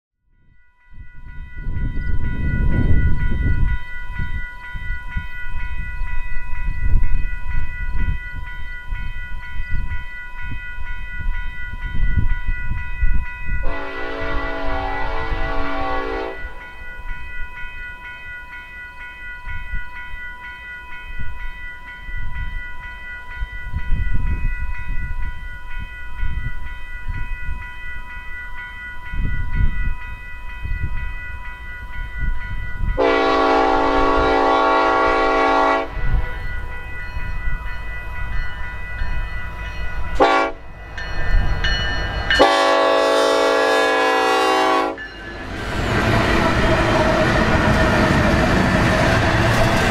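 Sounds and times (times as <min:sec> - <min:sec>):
diesel locomotive horn blasts: 0:13.6 - 0:16.6, 0:33.0 - 0:36.4, 0:40.2 - 0:40.7, 0:42.3 - 0:45.0.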